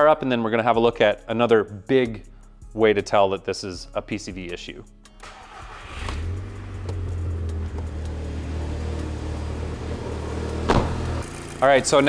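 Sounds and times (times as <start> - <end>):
car engine starting and idling: 5.2 - 11.7
sharp knock: 10.7 - 11.1.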